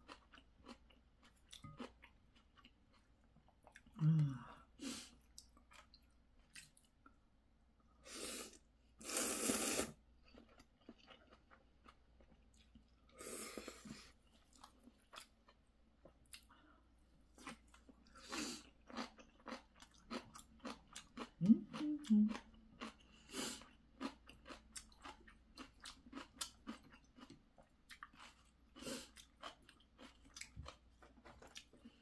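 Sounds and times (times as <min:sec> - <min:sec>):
noodles slurped: 0:08.4 - 0:10.0.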